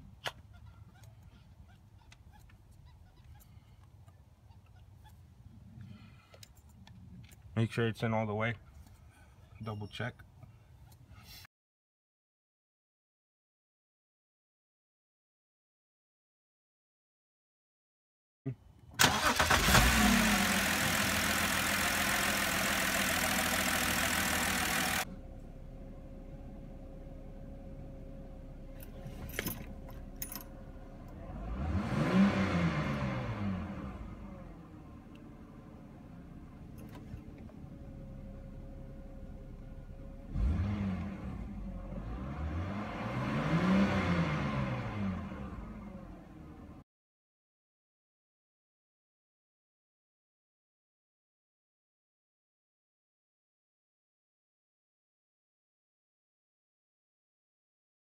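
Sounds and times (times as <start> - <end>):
car engine idling: 19.1 - 31.8, 34.0 - 40.3.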